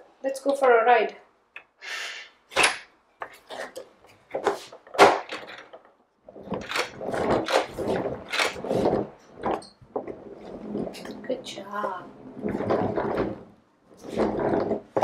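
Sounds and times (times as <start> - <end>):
plastic wheels rumbling on table: 5.4 - 15.0.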